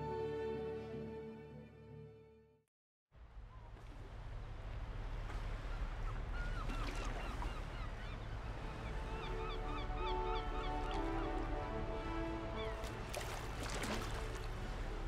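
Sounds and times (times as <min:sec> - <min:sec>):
soft music: 0:00.0 - 0:02.6, 0:08.4 - 0:15.0
birds calling: 0:05.6 - 0:14.1.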